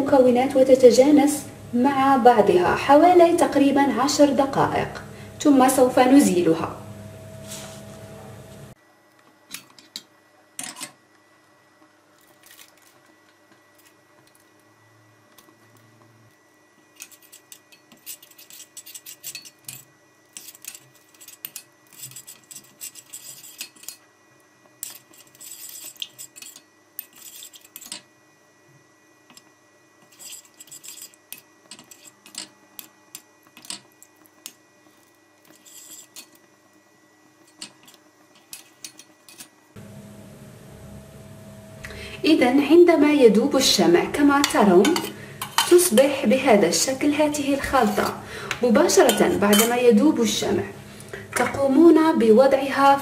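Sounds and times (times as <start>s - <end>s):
metal spoon stirring in saucepan: 17.0s - 24.0s, 24.8s - 28.0s, 30.0s - 33.8s, 34.9s - 36.4s, 37.5s - 39.5s, 44.4s - 46.2s, 48.9s - 49.8s.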